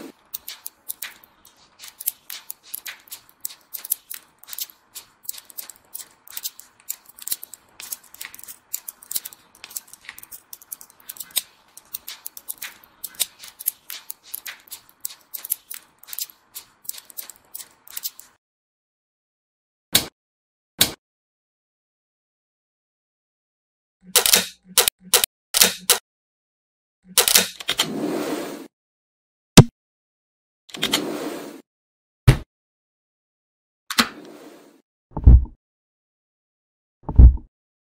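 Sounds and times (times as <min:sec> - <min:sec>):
magnetic metal balls clicking: 0:00.3 - 0:18.2.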